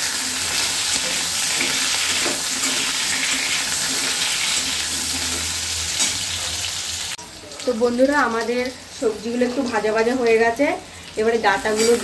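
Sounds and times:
vegetables sizzling in oil: 0:00.0 - 0:12.0
metal spatula stirring: 0:00.1 - 0:06.3.

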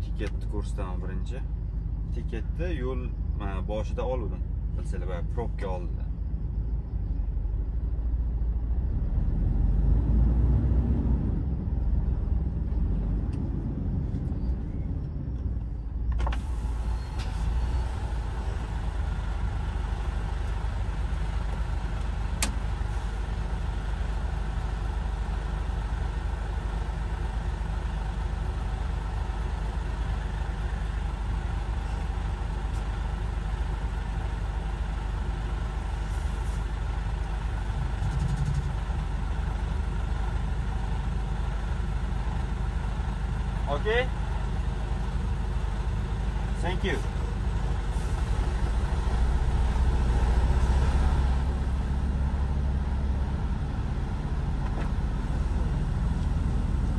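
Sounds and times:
truck diesel engine running: 0:00.0 - 0:56.9.

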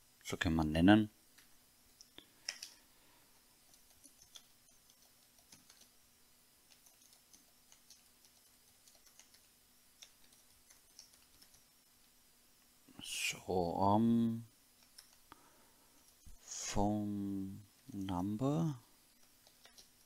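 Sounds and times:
faint low hum: 0:00.0 - 0:20.0
keyboard typing clicks: 0:01.4 - 0:02.8, 0:03.6 - 0:05.9, 0:06.7 - 0:11.7, 0:14.8 - 0:15.3, 0:19.2 - 0:20.0.

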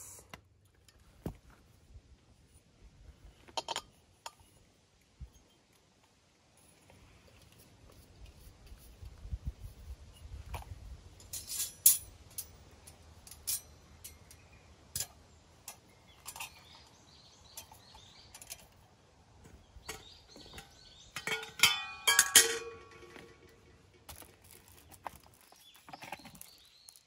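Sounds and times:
clicks and taps of camp gear: 0:00.2 - 0:01.8, 0:03.3 - 0:09.2, 0:10.4 - 0:27.0
kettle clanking on metal grill: 0:03.5 - 0:04.5, 0:15.0 - 0:16.9, 0:19.5 - 0:24.2.

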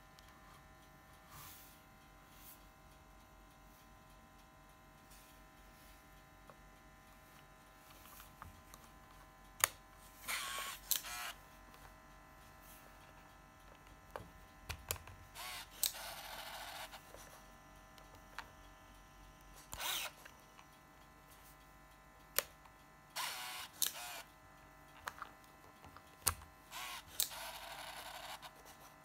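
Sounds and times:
camera motor whirring: 0:09.6 - 0:12.0, 0:15.2 - 0:20.7, 0:22.4 - 0:29.0.

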